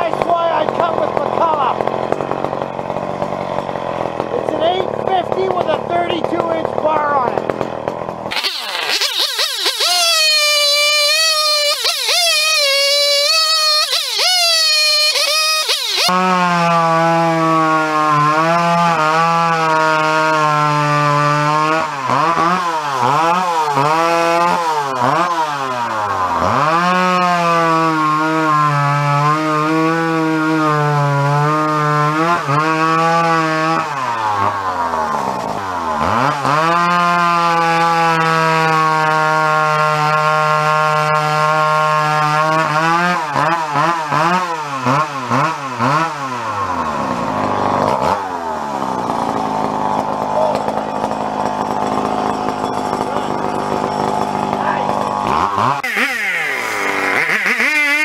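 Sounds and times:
chainsaw cutting a log: 0:00.0 - 0:58.0.

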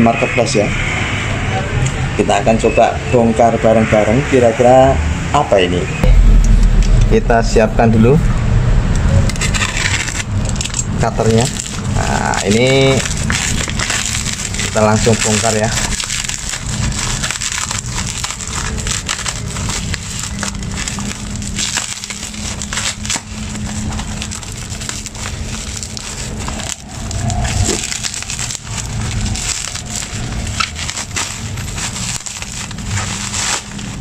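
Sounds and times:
steady low hum: 0:06.0 - 0:11.0
plastic and bubble wrap crinkling: 0:09.2 - 0:34.0.

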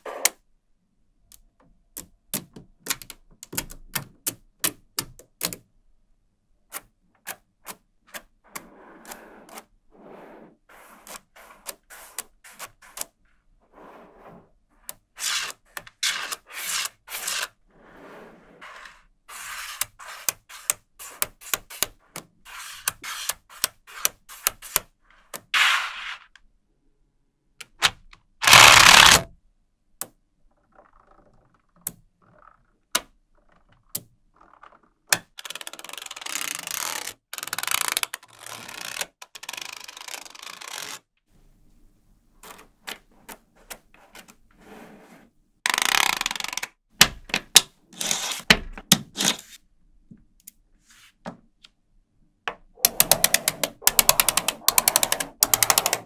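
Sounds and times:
magnetic balls clicking: 0:52.8 - 0:56.0.

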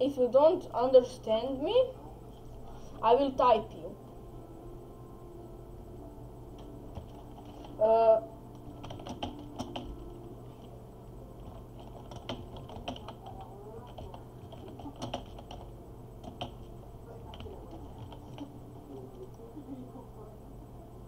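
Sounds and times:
keyboard keys clicking: 0:06.6 - 0:07.8, 0:08.6 - 0:10.0, 0:11.4 - 0:19.4.

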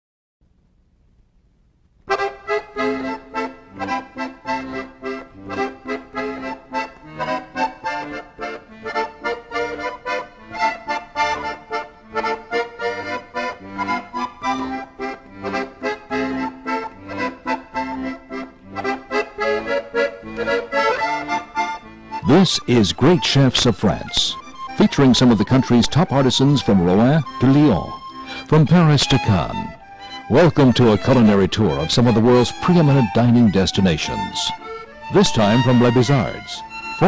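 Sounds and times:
accordion music: 0:02.0 - 0:37.0.

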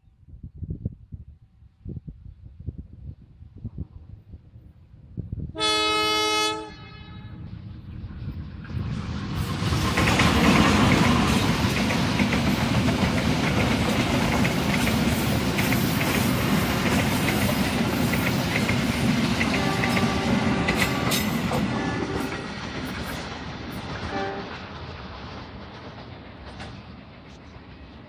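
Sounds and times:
train coaches rolling past: 0:05.6 - 0:28.0
wheels clicking over rail joints: 0:08.7 - 0:27.9.

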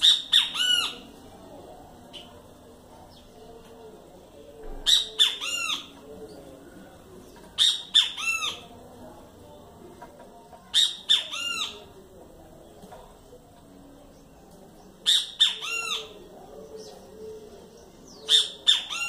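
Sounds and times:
mockingbird calling: 0:00.0 - 0:01.1, 0:04.8 - 0:06.0, 0:07.6 - 0:08.7, 0:15.0 - 0:16.2.

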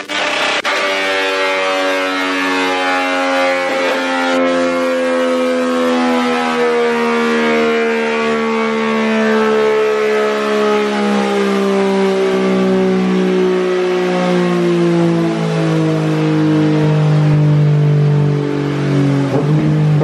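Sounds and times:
motorcycle spinning dyno roller: 0:10.6 - 0:20.0.

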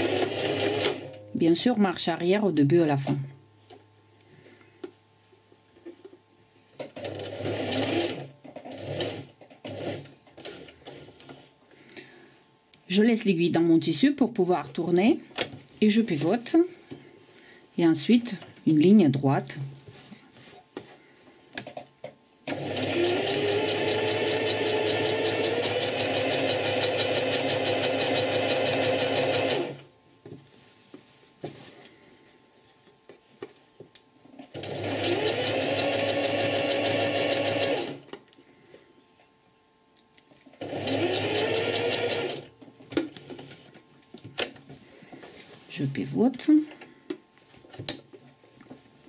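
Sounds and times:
sewing machine stitching: 0:00.0 - 0:01.1, 0:07.0 - 0:11.0, 0:22.5 - 0:29.8, 0:34.5 - 0:38.0, 0:40.6 - 0:42.5.

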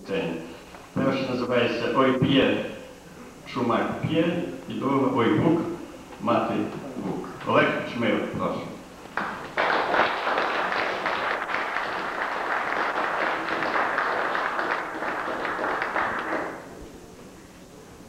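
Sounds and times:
audience applauding: 0:09.1 - 0:16.8.

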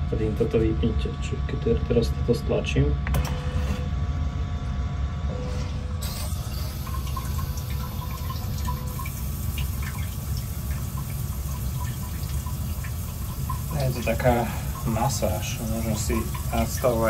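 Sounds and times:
water spray hissing in toilet bowl: 0:06.1 - 0:17.0.

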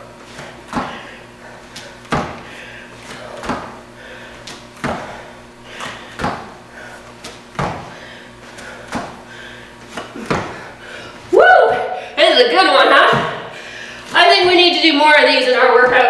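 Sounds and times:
feet thudding on foam mats: 0:00.3 - 0:11.9.

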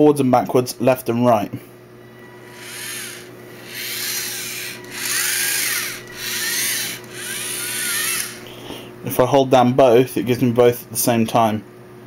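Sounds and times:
toy robot motors whirring: 0:02.4 - 0:08.5.

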